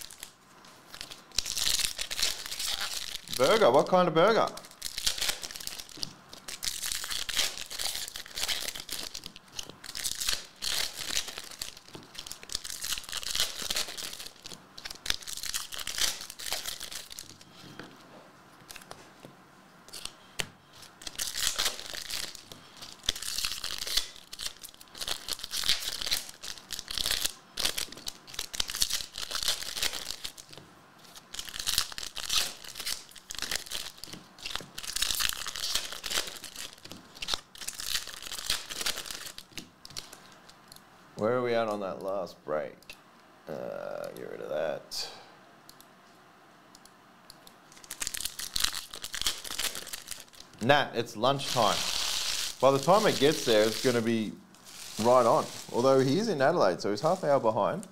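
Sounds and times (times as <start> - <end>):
wrappers crinkling: 0.0 - 17.7, 20.8 - 40.6, 47.7 - 50.5, 51.3 - 57.9
foil packs tearing: 0.9 - 3.6, 4.7 - 17.3, 21.0 - 40.1, 47.8 - 50.4, 51.4 - 56.3.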